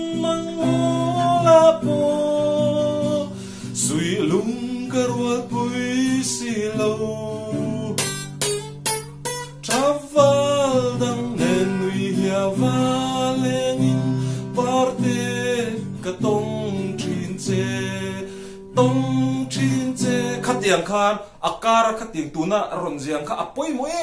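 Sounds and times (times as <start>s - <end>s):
man singing: 0.0s - 8.4s, 9.6s - 24.0s
acoustic guitar strumming: 0.0s - 22.1s.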